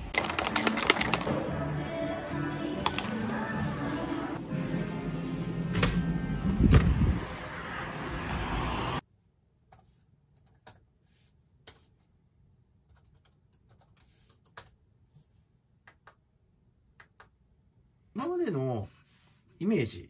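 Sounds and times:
typing on computer keyboard: 10.3s - 10.9s, 12.8s - 14.8s.

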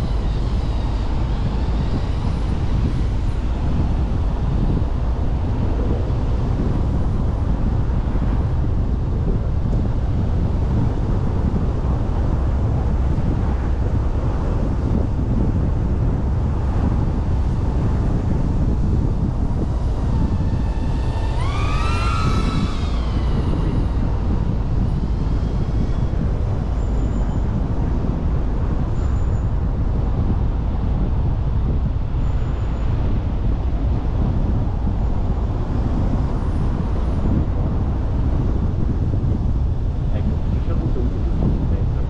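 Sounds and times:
road noise: 0.0s - 42.0s
wind on microphone: 0.0s - 42.0s
wavering tone: 19.2s - 27.5s.

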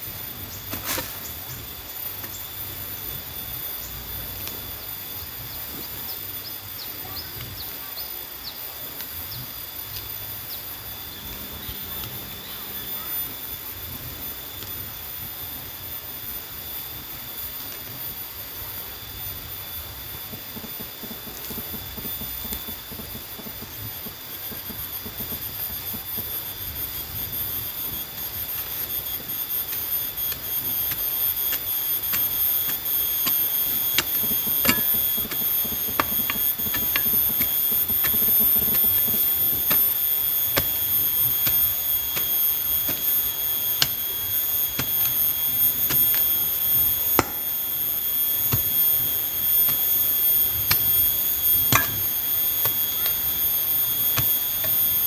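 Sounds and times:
high-pitched insect chorus: 0.0s - 55.0s
sharp clicks and knocks: 29.7s - 43.2s, 48.5s - 53.5s.

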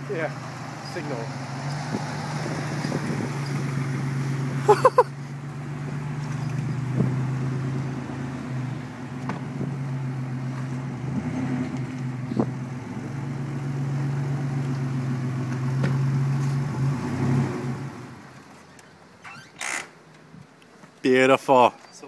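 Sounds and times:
truck engine driving off: 0.0s - 18.8s.

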